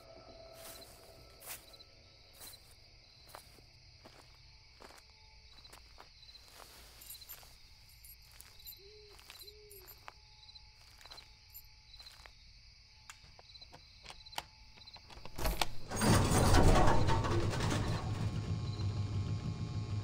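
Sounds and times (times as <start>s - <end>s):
crickets and insects chirring: 0.0s - 17.1s
metal container door bar clanking: 15.0s - 18.4s.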